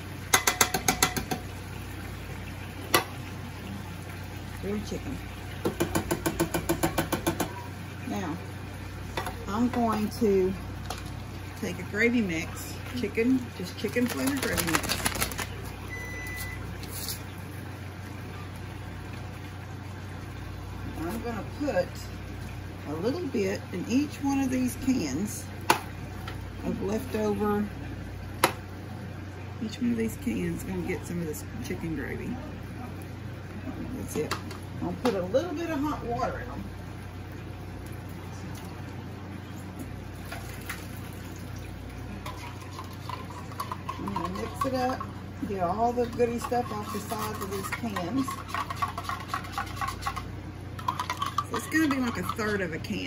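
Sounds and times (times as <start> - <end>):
low electrical hum: 0.0 - 53.0
water running from tap: 0.0 - 53.0
paper packet ripping: 14.0 - 15.7.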